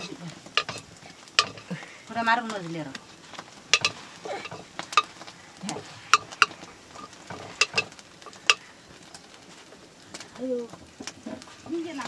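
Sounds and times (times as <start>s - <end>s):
metal ladle scraping a pot: 0.0s - 1.7s, 3.7s - 8.6s.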